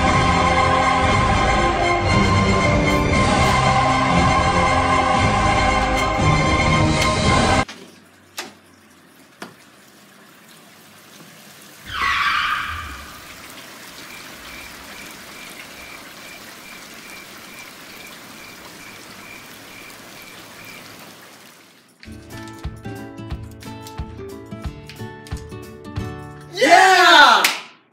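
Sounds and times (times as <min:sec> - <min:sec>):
steady rain hissing: 0:09.9 - 0:22.0
faint regular chirp: 0:14.0 - 0:21.0.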